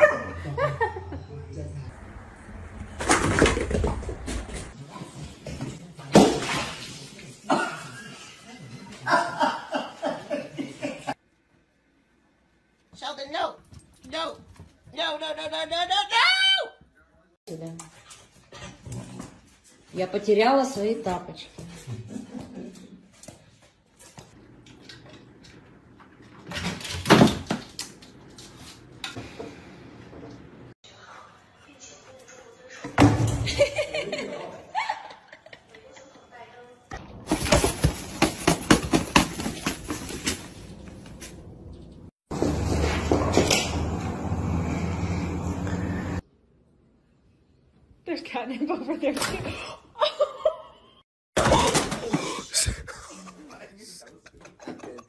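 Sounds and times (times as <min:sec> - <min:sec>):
object crashing on floor: 0:03.0 - 0:04.6, 0:37.2 - 0:40.4
person laughing: 0:51.5 - 0:55.0.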